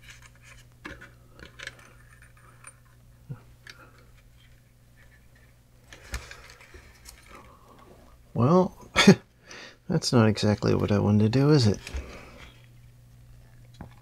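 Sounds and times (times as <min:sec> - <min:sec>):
clicks and rustles of handling parts: 0:00.0 - 0:07.9
steady low hum: 0:00.0 - 0:14.0.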